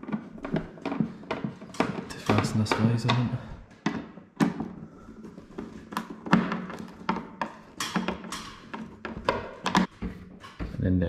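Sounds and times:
screwdriver clicks and knocks: 0:05.6 - 0:10.6.

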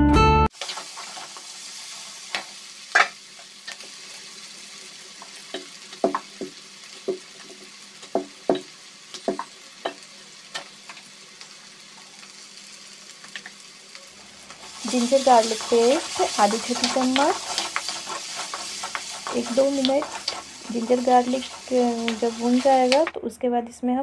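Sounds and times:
vegetables sizzling in a pan: 0:00.5 - 0:23.2
spatula scraping pan: 0:00.6 - 0:01.5, 0:14.4 - 0:23.1.

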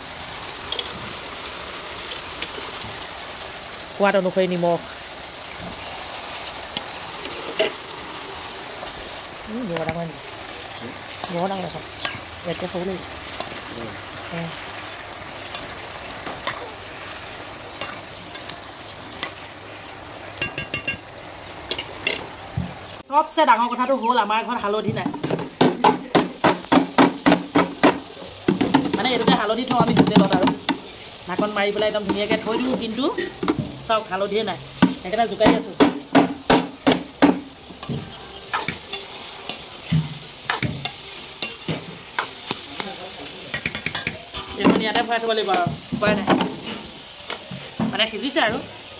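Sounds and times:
vegetables sizzling in a pan: 0:00.0 - 0:48.9
ladle scraping metal pan: 0:09.8 - 0:11.4, 0:14.7 - 0:18.6
metal spoon scraping and clinking pan: 0:09.8 - 0:13.6, 0:14.7 - 0:15.8, 0:16.4 - 0:18.6, 0:20.4 - 0:21.0, 0:38.5 - 0:42.4.

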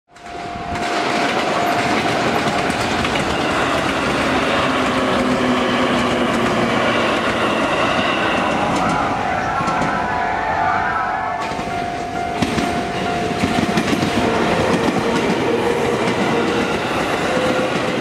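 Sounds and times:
passenger train running past: 0:00.1 - 0:18.0
train wheels clattering over rail joints: 0:00.2 - 0:10.0, 0:11.4 - 0:18.0.

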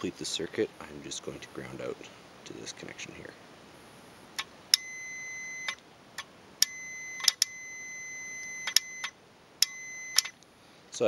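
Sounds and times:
multimeter continuity beep: 0:04.7 - 0:05.8, 0:06.6 - 0:10.4.

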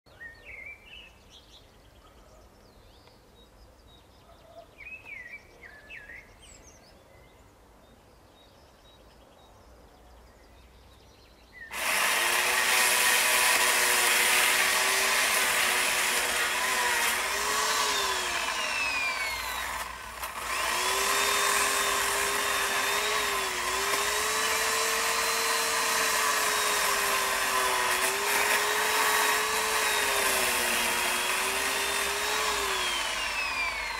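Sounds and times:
power saw cutting into tree: 0:11.7 - 0:33.9.

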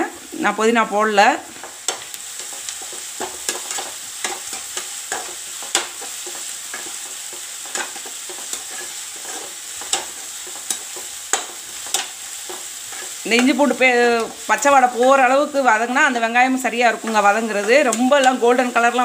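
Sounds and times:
onions sizzling in oil: 0:00.0 - 0:19.0
spatula scraping and tapping pan: 0:01.6 - 0:13.6.

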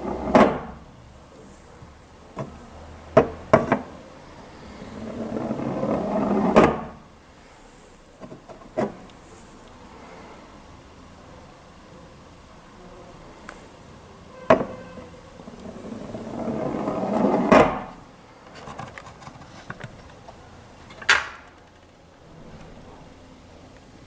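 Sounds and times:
cone rolling on metal rails: 0:04.8 - 0:07.0, 0:14.3 - 0:18.0.

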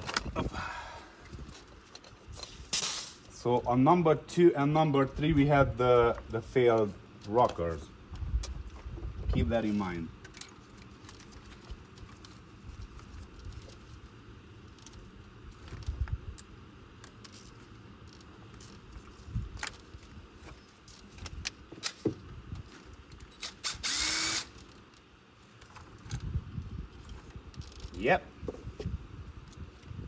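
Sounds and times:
cordless power driver running: 0:23.4 - 0:24.6.

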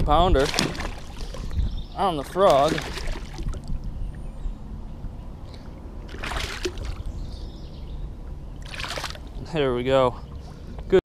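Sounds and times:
water splashing: 0:00.0 - 0:03.9, 0:06.0 - 0:07.1, 0:08.6 - 0:09.5
low rumble: 0:00.0 - 0:10.8.

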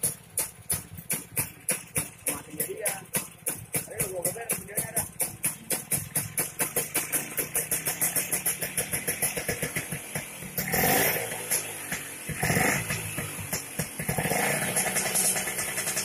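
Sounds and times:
scooter engine idling: 0:00.0 - 0:16.0.

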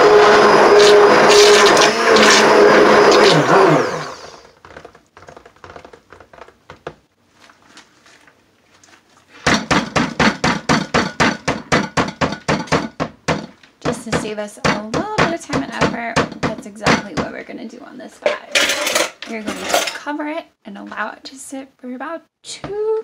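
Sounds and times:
blender motor: 0:00.0 - 0:04.6.

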